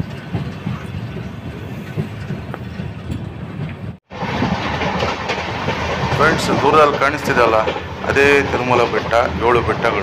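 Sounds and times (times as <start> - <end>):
faint clicks of wheels: 0.0 - 3.8
train wheels rumbling on track: 0.0 - 10.0.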